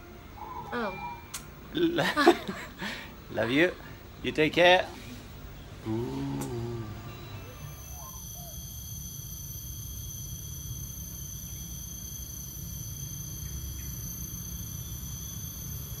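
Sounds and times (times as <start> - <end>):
low steady rumble: 0.0 - 8.2
insects whining: 0.0 - 16.0.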